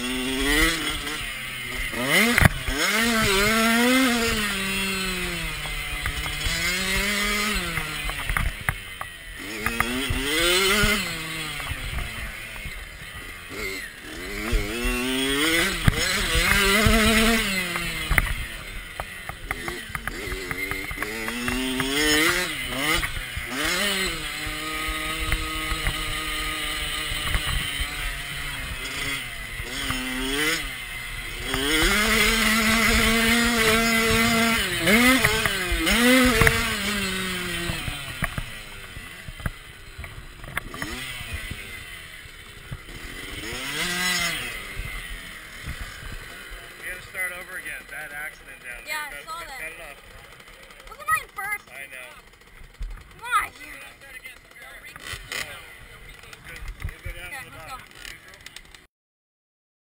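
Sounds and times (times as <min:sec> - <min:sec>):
motocross bike engine revving: 0:00.0 - 0:58.9
bike knocking over rough track: 0:14.3 - 0:28.0, 0:31.4 - 0:41.7.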